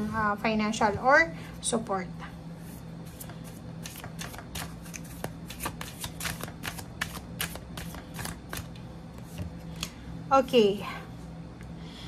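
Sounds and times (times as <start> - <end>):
cards shuffled by hand: 3.1 - 9.9.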